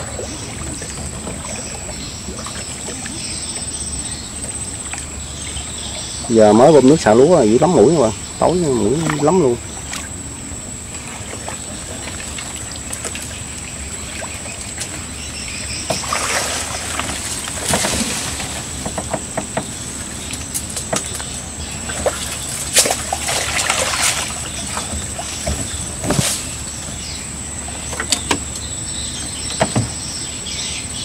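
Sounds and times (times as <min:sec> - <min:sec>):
water sloshing and splashing: 0:00.0 - 0:28.6
knocks and rustles in leaves: 0:11.0 - 0:28.6.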